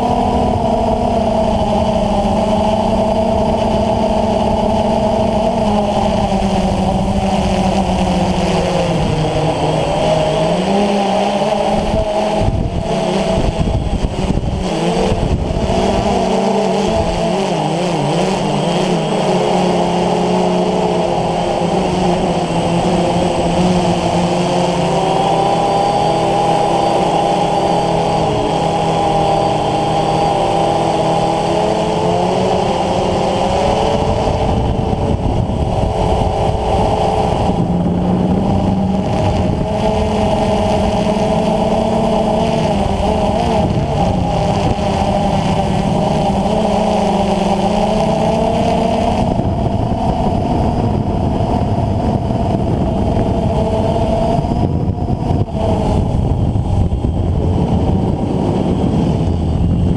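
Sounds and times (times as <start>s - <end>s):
drone propellers buzzing: 0.0s - 59.9s.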